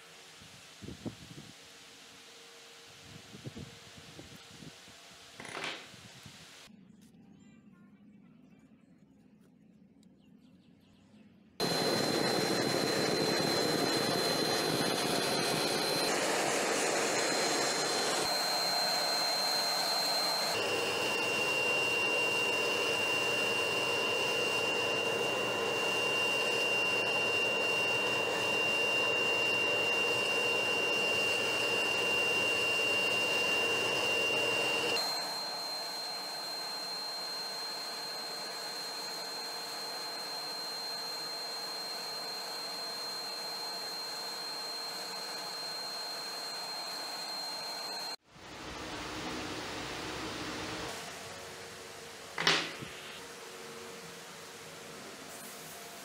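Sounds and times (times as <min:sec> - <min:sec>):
air blower rushing with high whine: 0:11.6 - 0:56.0.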